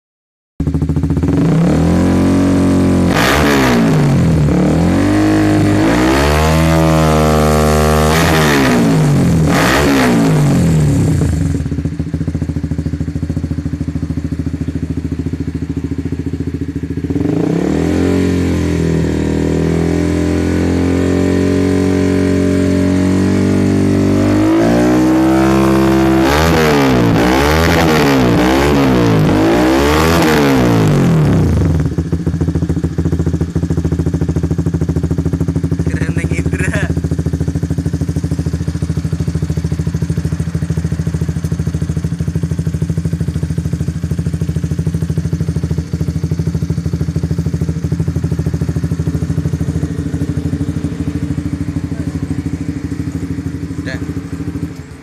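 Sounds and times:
motorcycle engine revving: 0.6 - 55.0.

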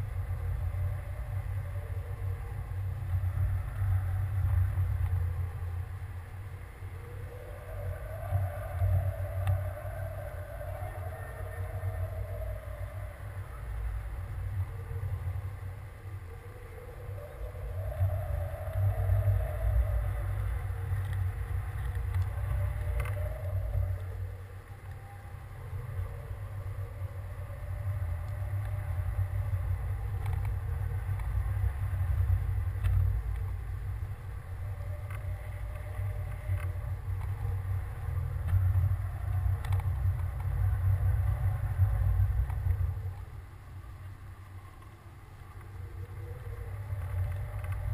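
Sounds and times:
wind buffeting microphone: 0.0 - 47.9.

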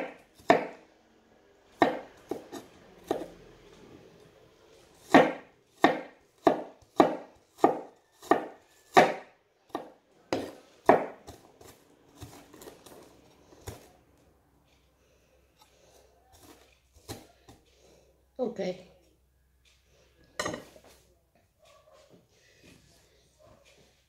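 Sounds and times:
knife chopping on wooden board: 0.0 - 0.8, 1.8 - 3.3, 5.1 - 13.9.

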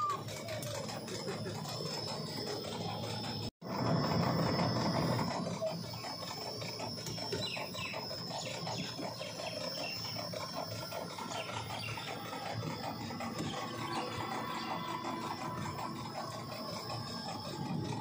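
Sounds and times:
small train rattling: 0.0 - 18.0
birds chirping: 5.2 - 18.0.

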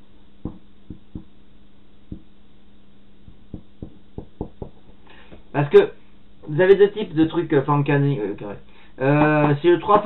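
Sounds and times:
faint steady hum: 0.0 - 10.0
marker tapping on whiteboard: 0.4 - 1.3, 2.1 - 2.3, 3.3 - 5.0.

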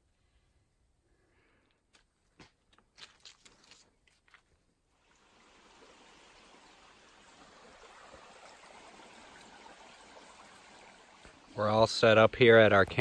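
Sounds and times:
creek running over rocks: 3.0 - 13.0.

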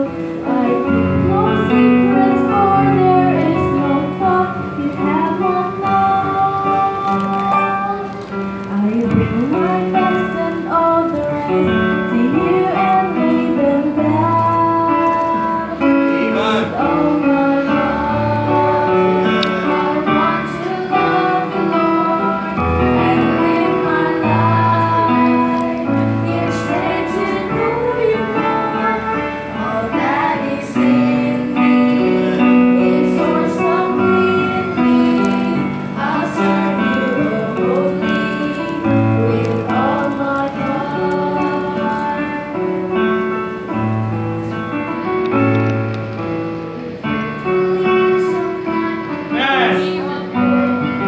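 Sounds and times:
girls singing into microphones: 0.0 - 43.1, 44.8 - 51.0
instrumental accompaniment: 0.0 - 51.0.

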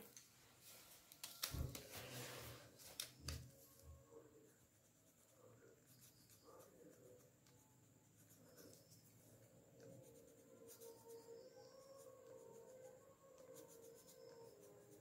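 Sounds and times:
paper rustling and knocks: 1.0 - 3.5
pencil scratching on paper: 4.4 - 15.0.

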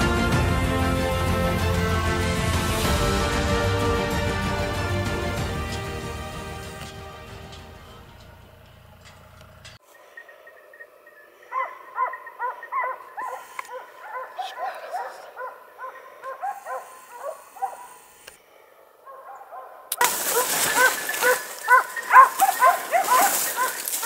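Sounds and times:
hounds barking: 10.1 - 24.0
brush rustling: 19.9 - 24.0.

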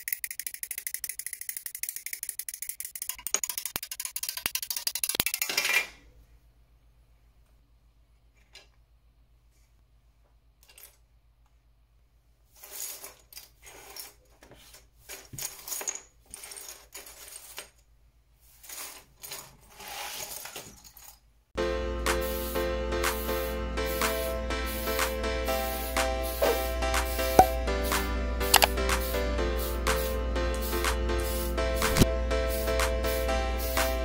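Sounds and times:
plastic parts rattling on a mat: 0.0 - 6.0, 12.5 - 17.9, 18.5 - 21.3
music: 21.6 - 34.0.

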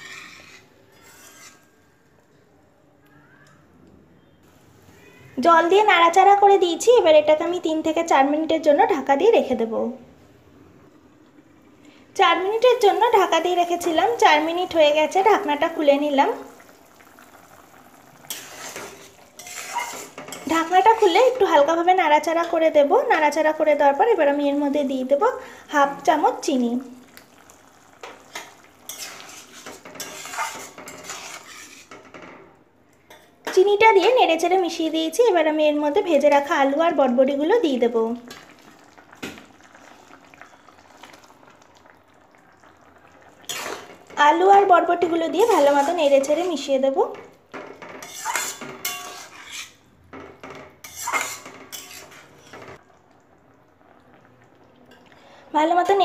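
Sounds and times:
spatula stirring thick gravy: 0.0 - 1.8, 17.7 - 21.5, 27.2 - 32.3, 43.4 - 44.2, 47.5 - 52.8
spatula clinking on pan: 47.6 - 52.8.

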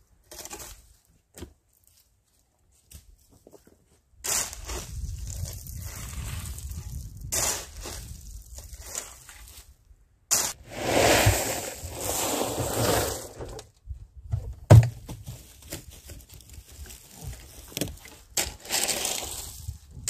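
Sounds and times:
shovel scraping gravel: 4.2 - 9.7, 10.3 - 13.6, 18.4 - 20.0.

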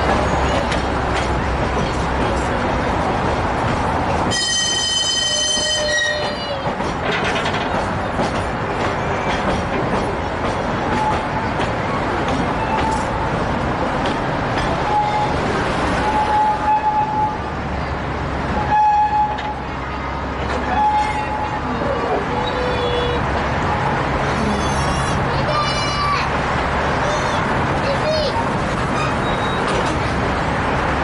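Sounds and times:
train rumbling on rails: 0.0 - 31.0
train horn: 4.3 - 6.6, 18.6 - 19.6
wheel squeals: 28.9 - 30.0.

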